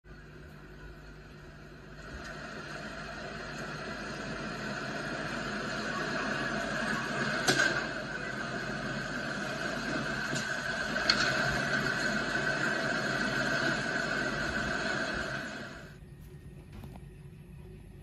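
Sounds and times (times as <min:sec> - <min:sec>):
fire roaring: 0:01.1 - 0:16.0
fire cracking: 0:01.7 - 0:16.0.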